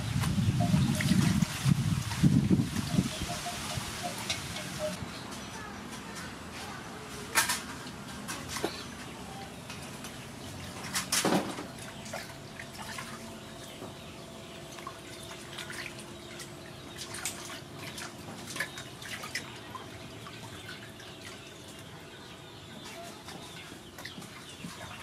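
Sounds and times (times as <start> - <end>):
water splashing and dripping: 0.0 - 5.0, 9.7 - 14.0, 14.6 - 22.1.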